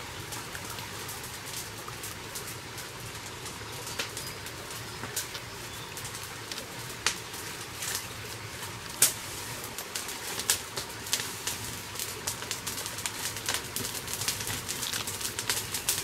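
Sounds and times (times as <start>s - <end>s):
brush fire crackling and popping: 0.0s - 16.0s.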